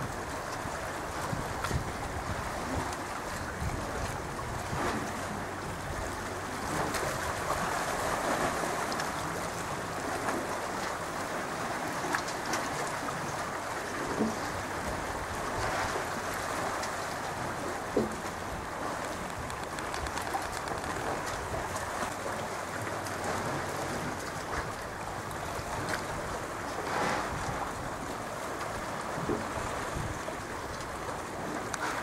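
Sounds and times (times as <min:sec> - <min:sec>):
wind on microphone: 0:00.0 - 0:09.4, 0:14.0 - 0:22.1, 0:23.2 - 0:28.1, 0:29.1 - 0:32.0
sea water splashing: 0:00.0 - 0:32.0.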